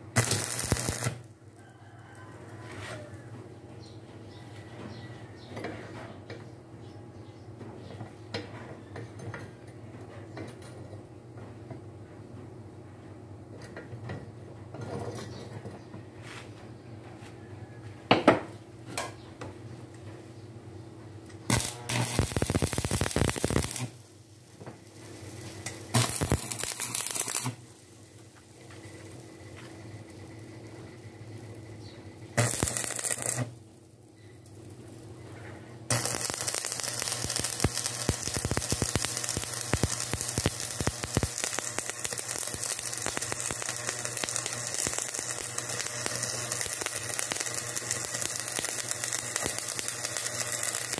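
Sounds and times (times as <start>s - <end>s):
welding arc crackling and sizzling: 0.0s - 1.7s, 21.4s - 35.3s, 35.9s - 50.9s.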